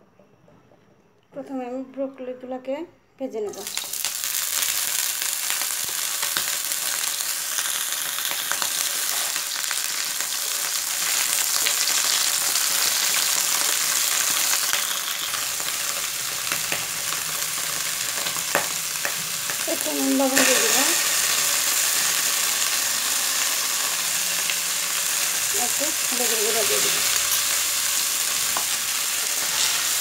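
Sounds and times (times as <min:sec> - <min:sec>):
vegetables sizzling in oil: 0:03.5 - 0:30.0
wooden spatula scraping pan: 0:29.4 - 0:30.0.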